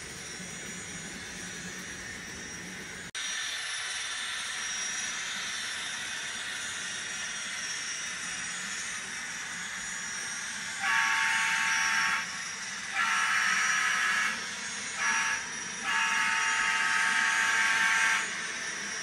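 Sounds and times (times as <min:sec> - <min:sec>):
model train horn blasts: 0:10.8 - 0:12.3, 0:12.9 - 0:14.4, 0:15.0 - 0:18.3.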